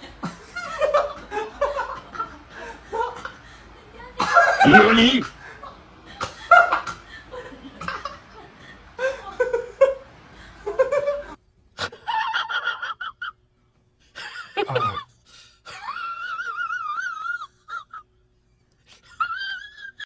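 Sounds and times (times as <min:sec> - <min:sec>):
person laughing: 0:04.2 - 0:05.6, 0:14.2 - 0:15.1.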